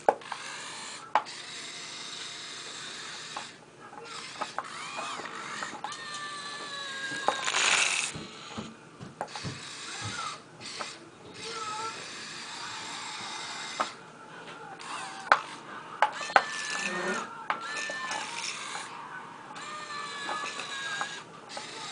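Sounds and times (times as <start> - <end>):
small electric motors whining: 0.0 - 14.0, 14.6 - 21.9.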